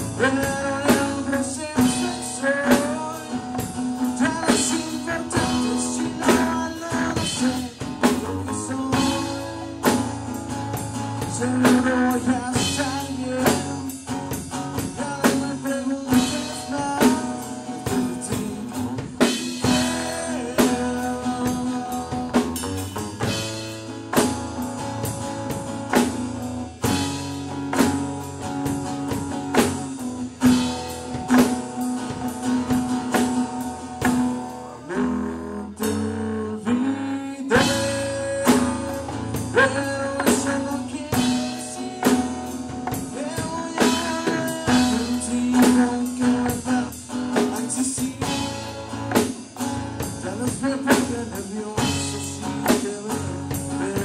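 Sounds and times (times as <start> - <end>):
man singing: 0.0 - 23.5, 34.3 - 49.4, 50.0 - 54.0
drum kit: 0.0 - 36.2, 37.4 - 54.0
guitar: 0.0 - 54.0.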